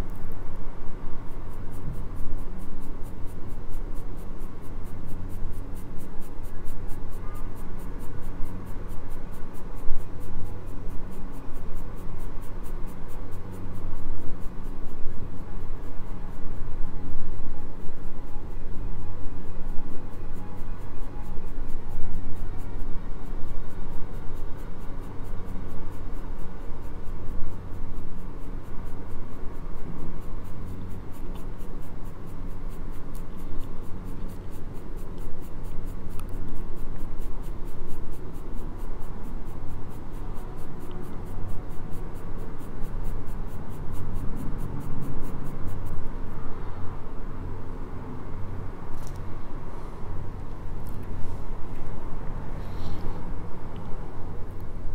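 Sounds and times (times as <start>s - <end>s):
pencil shading on paper: 1.3s - 46.1s.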